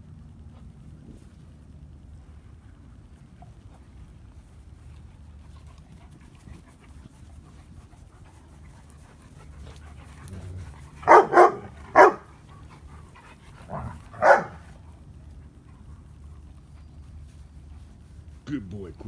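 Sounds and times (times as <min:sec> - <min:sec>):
dog barking: 0:11.0 - 0:12.3, 0:13.7 - 0:14.7.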